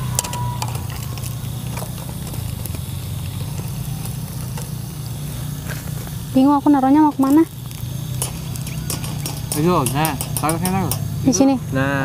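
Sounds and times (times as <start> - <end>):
gas burner noise: 0.0 - 12.0
oil sizzling: 0.0 - 12.0.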